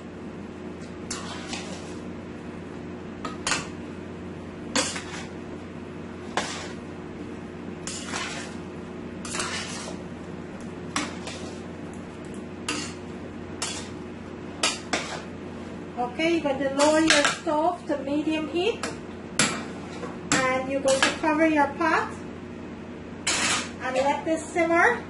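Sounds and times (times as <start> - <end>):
metal spoon scraping a pot: 1.1 - 2.0, 4.8 - 5.3, 6.3 - 6.8, 7.8 - 8.6, 9.2 - 10.0, 11.0 - 11.6, 12.7 - 13.0, 13.6 - 14.0, 14.6 - 15.3, 18.8 - 21.2, 23.2 - 24.1.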